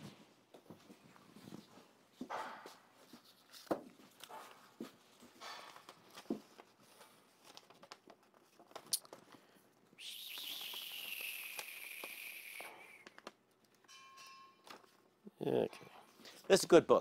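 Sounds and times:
paper pages rustling: 0:03.1 - 0:09.6.

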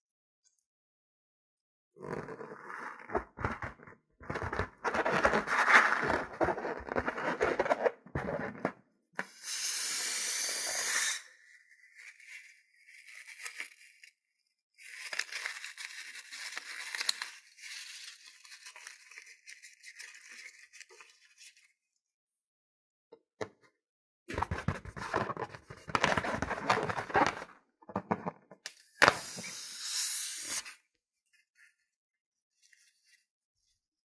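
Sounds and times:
balloon crackling and squeaking: 0:04.4 - 0:08.2, 0:24.3 - 0:28.2
air hissing out of balloon: 0:09.3 - 0:11.4, 0:29.0 - 0:30.7.

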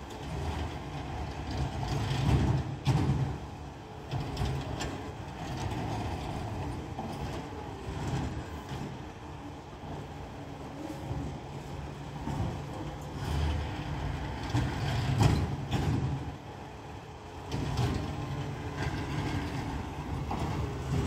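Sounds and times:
garbage truck engine rumbling: 0:00.0 - 0:21.0.

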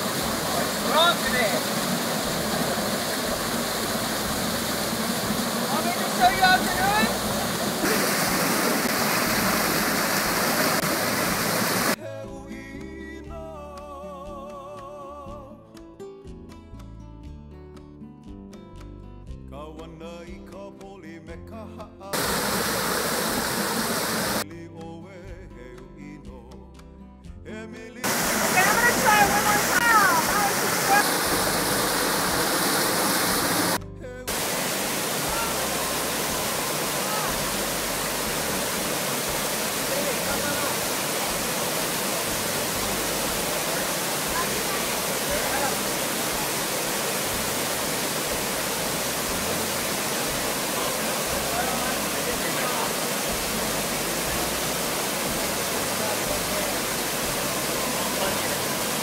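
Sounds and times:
waterfall roar: 0:00.0 - 0:12.0, 0:22.2 - 0:24.4, 0:28.0 - 0:59.0
acoustic guitar music: 0:14.9 - 0:22.1.

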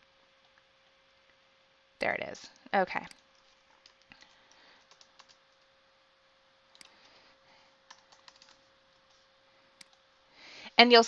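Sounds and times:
faint steady hum: 0:00.0 - 0:11.0
computer mouse clicks: 0:03.0 - 0:05.6, 0:06.7 - 0:07.1, 0:07.9 - 0:09.2
keyboard keystrokes: 0:07.9 - 0:09.2.

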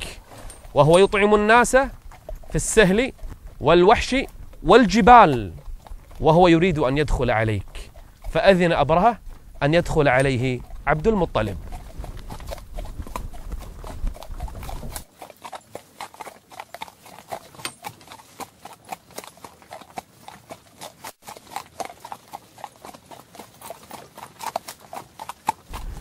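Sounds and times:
horse hooves on stony ground: 0:00.0 - 0:26.0
low rumble: 0:25.7 - 0:26.0.

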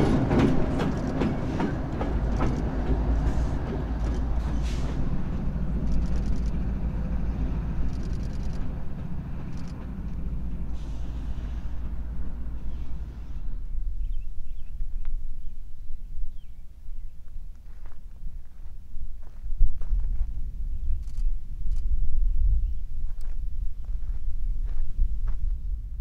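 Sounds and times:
train wheels clicking over rail joints: 0:00.0 - 0:13.5
freight train rumble: 0:00.0 - 0:26.0.

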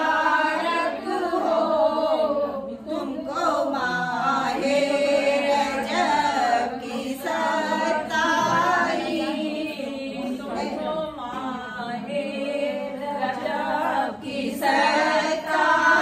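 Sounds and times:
women singing in unison: 0:00.0 - 0:16.0.

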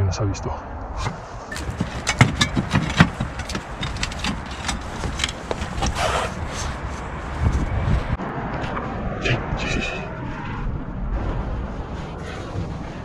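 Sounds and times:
low rumble: 0:00.0 - 0:13.0
scrape on roof tiles: 0:01.0 - 0:07.7
footsteps on roof tiles: 0:01.0 - 0:08.2.

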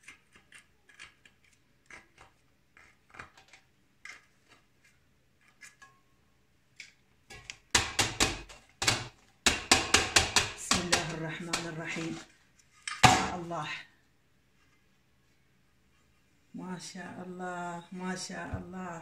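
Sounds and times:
knife scraping metal cake tin: 0:00.0 - 0:05.9
metal tin knocking on tray: 0:07.8 - 0:11.8.

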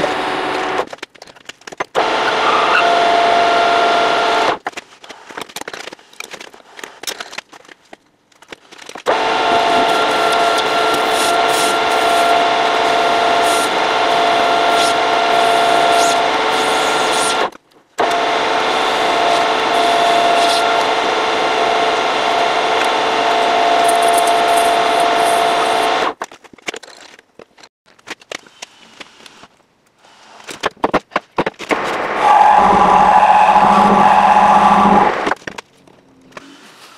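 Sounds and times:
metal lathe whine: 0:09.1 - 0:17.4, 0:18.3 - 0:26.0, 0:32.0 - 0:35.3
lathe tool scraping steel: 0:32.0 - 0:35.4.

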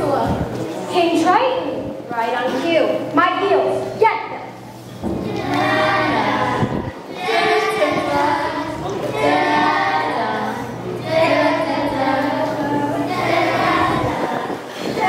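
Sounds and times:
children singing together: 0:05.1 - 0:15.0.

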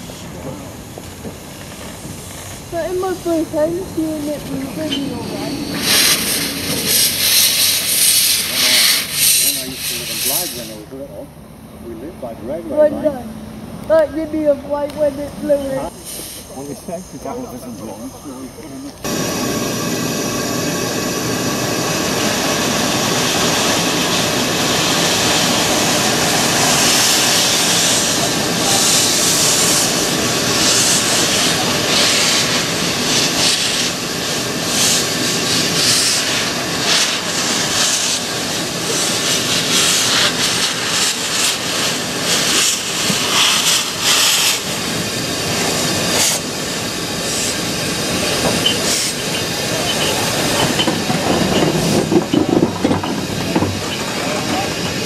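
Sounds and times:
steam hissing: 0:00.0 - 0:11.2, 0:14.2 - 0:55.0
steam locomotive exhaust beats: 0:00.0 - 0:11.2, 0:13.4 - 0:18.0, 0:19.0 - 0:55.0.

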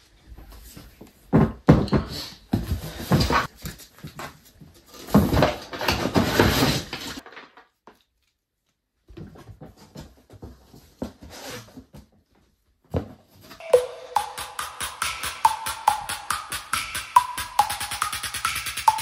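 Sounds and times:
electronic music with steady beat: 0:13.6 - 0:19.0.

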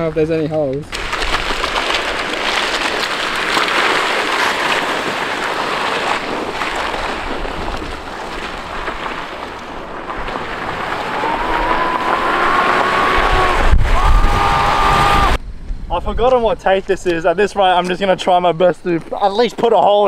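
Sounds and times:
wind on microphone: 0:00.9 - 0:17.0
fabric scraping on asphalt: 0:01.0 - 0:13.9.

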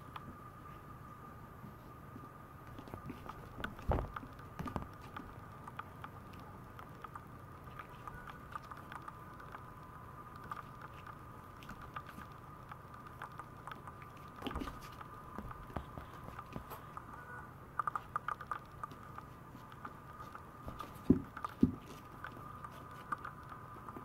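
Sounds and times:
faint high hum: 0:00.0 - 0:24.0
puppy claws ticking on floor: 0:17.8 - 0:24.0.

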